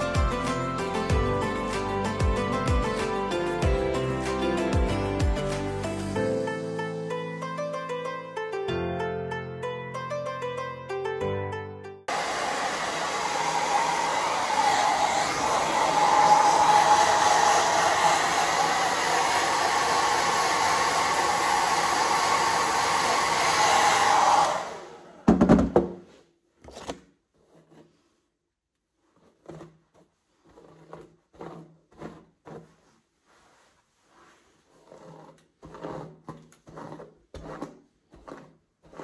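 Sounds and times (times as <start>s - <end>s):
hair dryer blowing: 12.1s - 25.6s.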